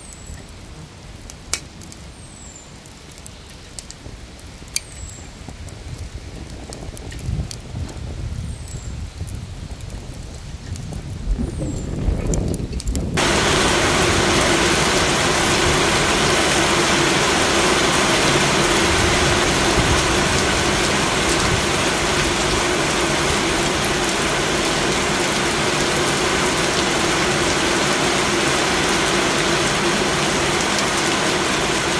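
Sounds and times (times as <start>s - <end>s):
heavy rain pouring: 3.9s - 31.9s.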